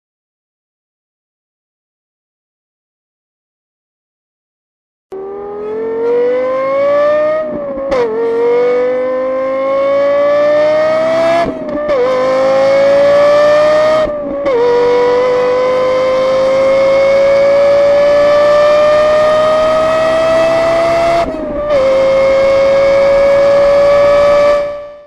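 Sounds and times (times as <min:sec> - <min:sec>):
car engine accelerating hard: 0:05.2 - 0:25.0.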